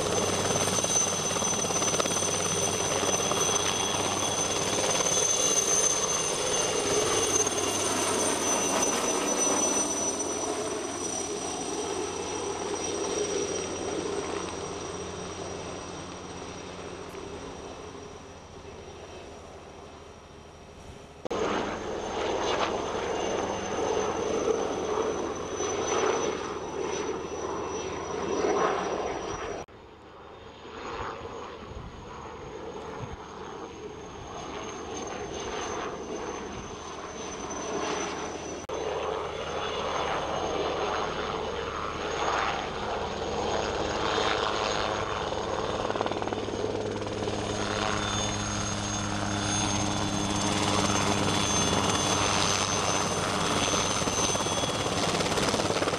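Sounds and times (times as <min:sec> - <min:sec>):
helicopter rotor beating: 0:00.0 - 0:29.6, 0:30.4 - 0:55.9.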